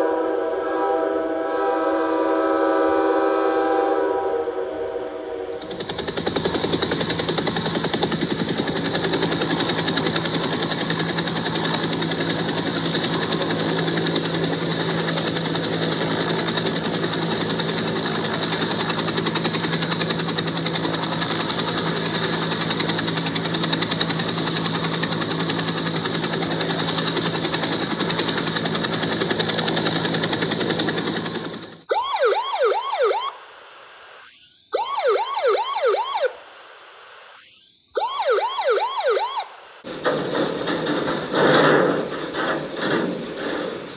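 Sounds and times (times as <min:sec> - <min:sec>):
helicopter turbine and rotor: 0:05.6 - 0:43.9
police siren yelp: 0:31.9 - 0:39.8.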